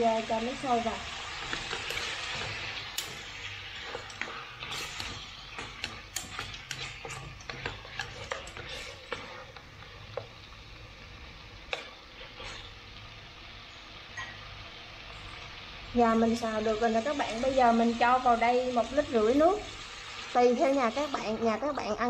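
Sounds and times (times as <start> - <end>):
frying sizzle: 0.0 - 22.0
chopsticks scraping metal pot: 1.4 - 9.6, 11.7 - 12.7.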